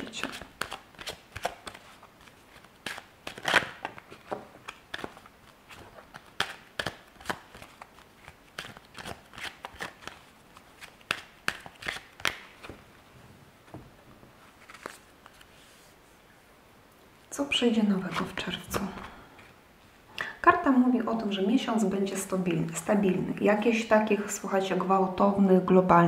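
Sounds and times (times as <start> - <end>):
cards being shuffled: 0.0 - 12.9, 13.7 - 15.8.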